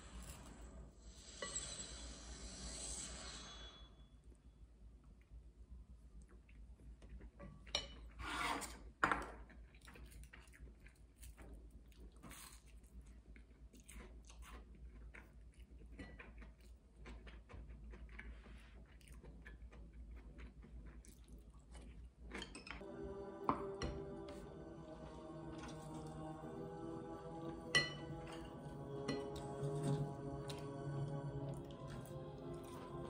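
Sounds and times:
chewing: 9.4 - 22.8, 28.1 - 33.0
soft music: 22.8 - 33.0.

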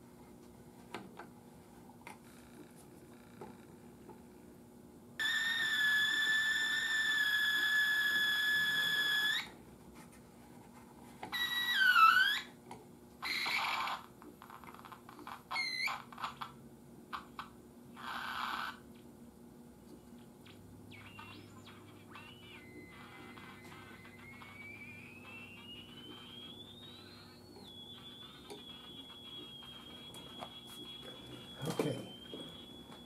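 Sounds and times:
radio whistling and squealing: 5.2 - 9.5, 11.4 - 12.5, 20.4 - 33.0.

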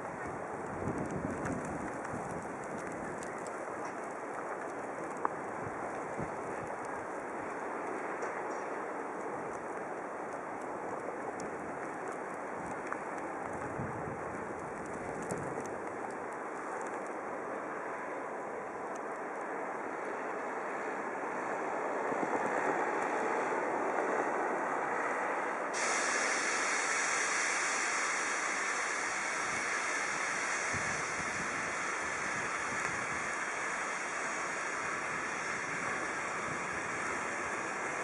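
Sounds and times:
vehicle tyres on snowy road: 0.0 - 38.0
bright hiss: 25.7 - 38.0.

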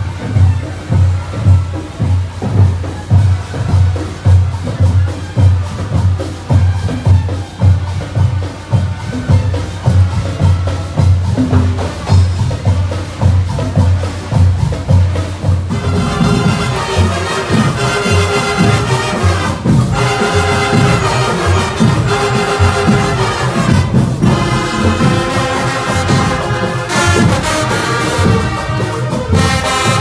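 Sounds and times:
steady drum beat: 0.0 - 30.0
upbeat parade music: 0.0 - 30.0
sustained melody notes: 15.7 - 30.0.

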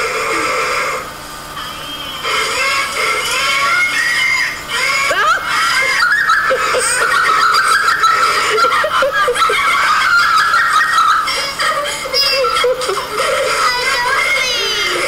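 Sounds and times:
loud human laughter: 4.9 - 13.6.

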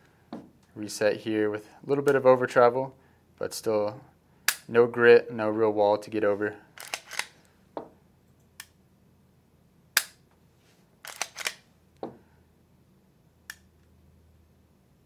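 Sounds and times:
mechanical pistol clicks: 6.8 - 7.3, 10.0 - 10.2, 11.0 - 11.6
pistol trigger snapping: 10.0 - 10.2.

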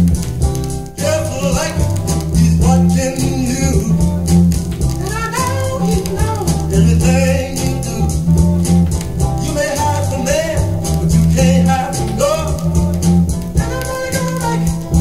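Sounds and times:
band with steady bass line: 0.0 - 15.0
gospel vocal group singing: 9.4 - 12.7.

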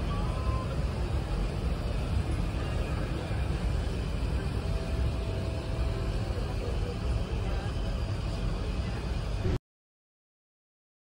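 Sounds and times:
aircraft cabin rumble: 0.0 - 9.6.

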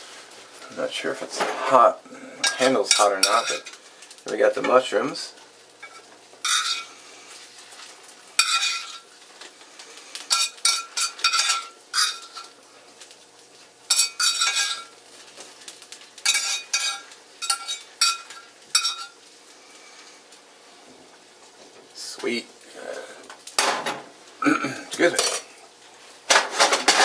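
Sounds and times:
metal spoon scraping skillet: 1.3 - 3.8, 5.8 - 9.1, 10.1 - 12.6, 13.9 - 14.9, 16.2 - 19.2, 26.3 - 27.0.

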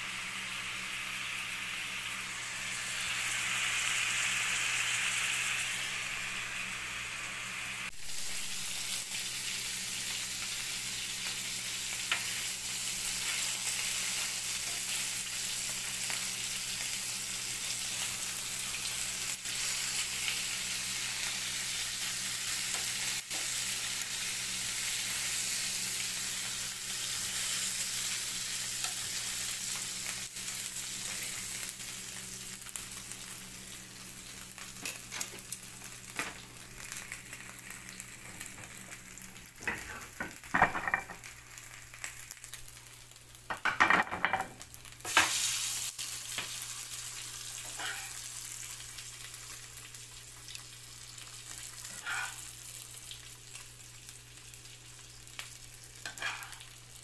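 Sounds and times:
food sizzling in oil: 0.0 - 57.0.

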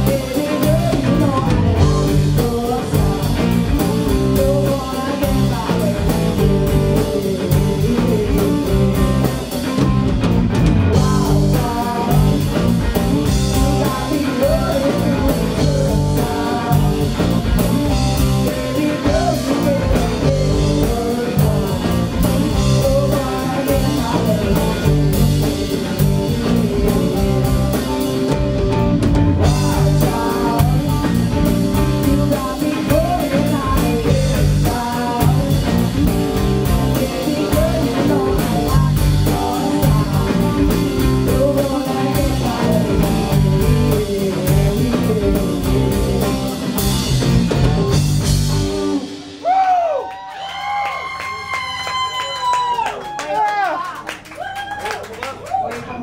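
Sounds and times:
woman singing: 0.0 - 9.5, 11.0 - 17.4, 18.2 - 28.1, 29.4 - 46.5
drum kit: 0.0 - 52.9
electric guitars: 0.0 - 53.2.

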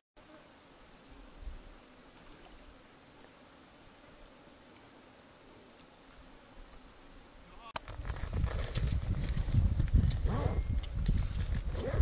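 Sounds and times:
wind rumble on microphone: 7.8 - 12.0.

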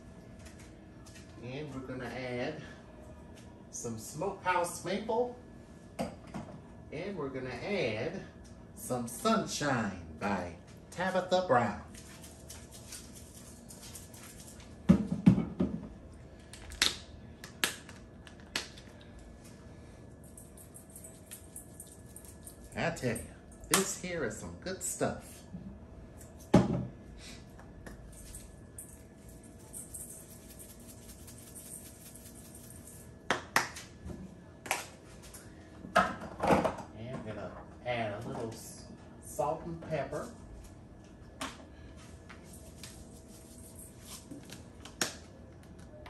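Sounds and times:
seasoning shaker hiss: 29.5 - 33.0.

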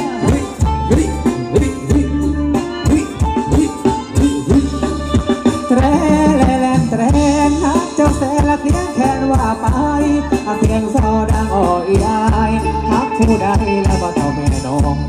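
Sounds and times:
drum kit steady beat: 0.0 - 15.0
person singing: 0.0 - 15.0.

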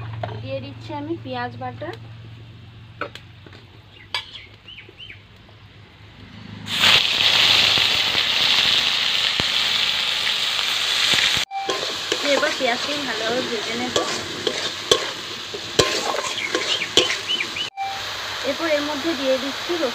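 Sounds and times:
paste sizzling in hot oil: 6.7 - 19.9.

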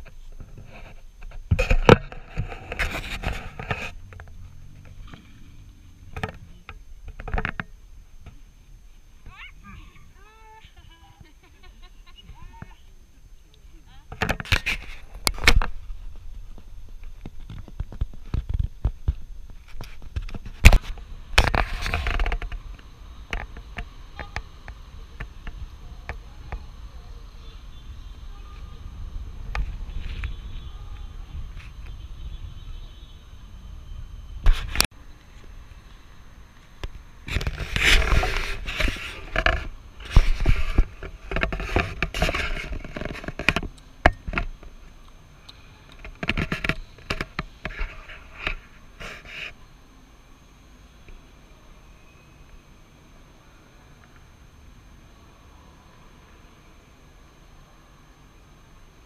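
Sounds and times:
wind rumbling on microphone: 14.1 - 44.7.

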